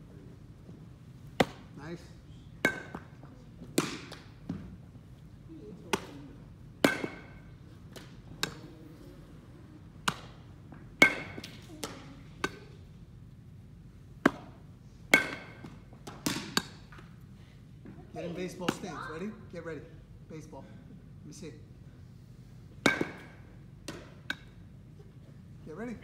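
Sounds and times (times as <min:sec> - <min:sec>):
baseball bat cracks: 0:03.8 - 0:04.4, 0:06.8 - 0:08.7, 0:10.0 - 0:10.4, 0:14.2 - 0:17.1.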